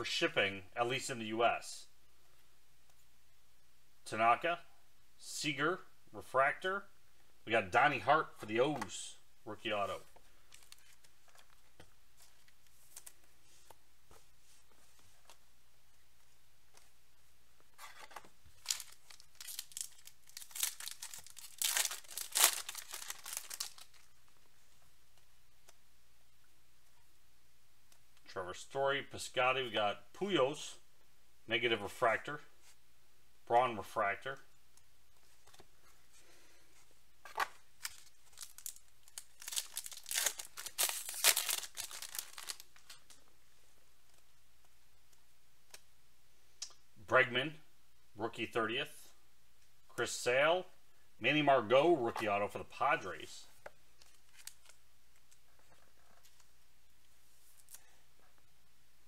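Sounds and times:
foil wrapper tearing and crinkling: 0:18.6 - 0:24.1, 0:37.8 - 0:43.1.

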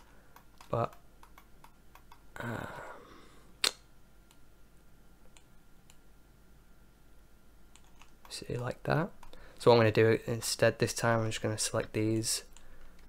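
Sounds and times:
mouse and keyboard clicks: 0:00.0 - 0:02.2, 0:07.7 - 0:08.3.

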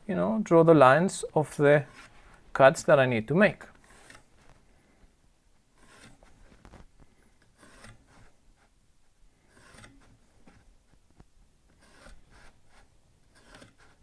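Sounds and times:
pencil scratching on wood: 0:05.8 - 0:06.4, 0:07.4 - 0:08.8, 0:09.4 - 0:11.0, 0:11.7 - 0:14.0.

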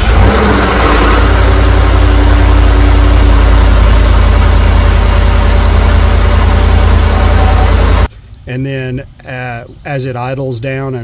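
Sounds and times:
truck engine at fast idle: 0:00.0 - 0:08.1.

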